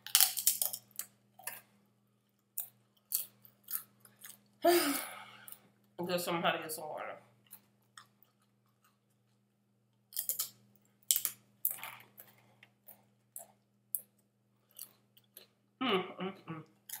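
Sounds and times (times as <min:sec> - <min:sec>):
person chewing food: 0:00.0 - 0:06.0, 0:07.3 - 0:15.7, 0:16.6 - 0:17.0.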